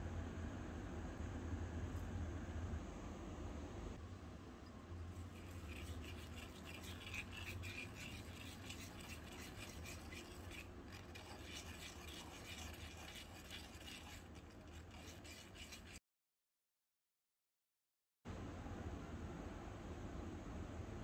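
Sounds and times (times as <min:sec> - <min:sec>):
metal spoon scraping metal bowl: 0:05.3 - 0:16.0.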